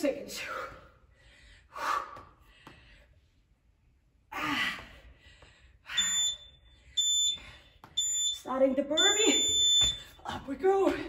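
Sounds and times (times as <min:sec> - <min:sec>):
woman breathing hard: 0:00.3 - 0:03.5, 0:04.3 - 0:08.0
high timer beeps: 0:05.9 - 0:10.2.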